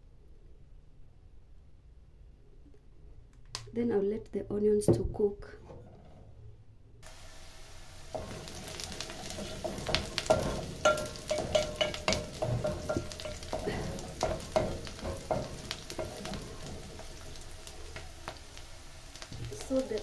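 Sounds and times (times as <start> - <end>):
onions sizzling in oil: 7.0 - 20.0
wooden spoon scraping pot: 8.1 - 20.0.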